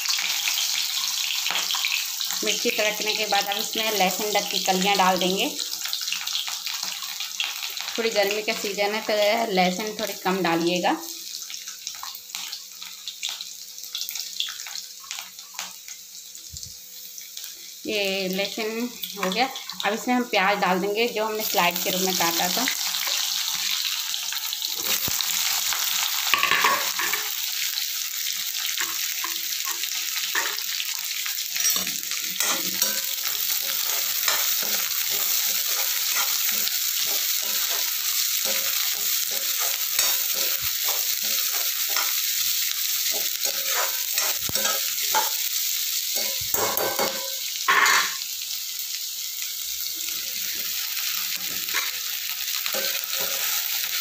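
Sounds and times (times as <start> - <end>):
onions sizzling in hot oil: 0.0 - 54.0
metal spoon scraping pan: 31.6 - 42.2, 43.0 - 45.4.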